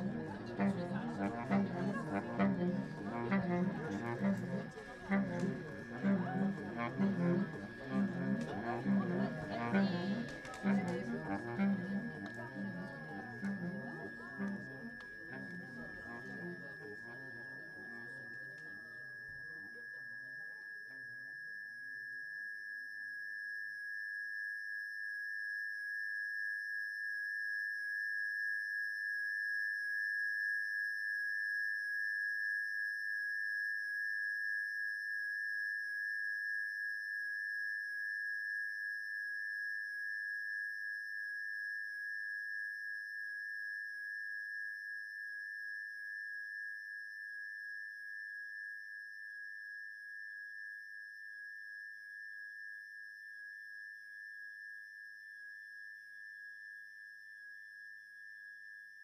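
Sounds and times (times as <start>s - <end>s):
high-pitched electronic tone: 0.0s - 20.2s.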